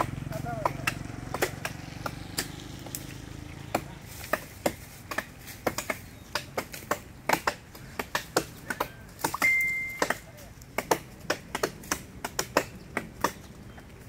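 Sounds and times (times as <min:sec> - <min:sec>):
blades chopping branches: 0:00.0 - 0:14.0
short high tone: 0:09.4 - 0:10.1.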